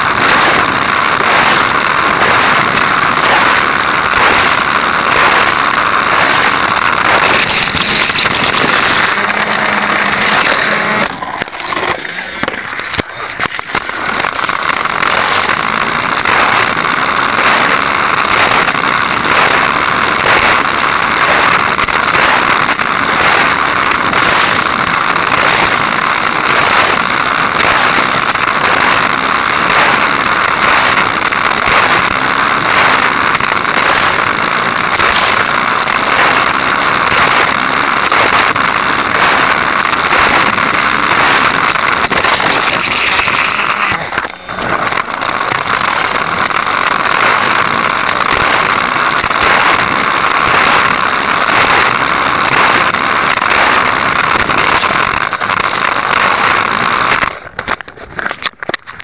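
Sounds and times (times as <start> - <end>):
toy car electric motor running: 13.4 - 57.4.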